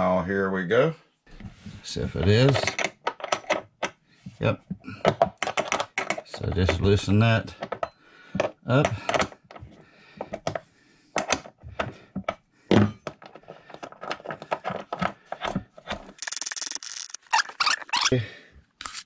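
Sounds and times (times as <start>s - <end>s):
wrench clicking and scraping plastic: 5.1s - 6.8s, 13.1s - 18.1s, 18.8s - 19.0s.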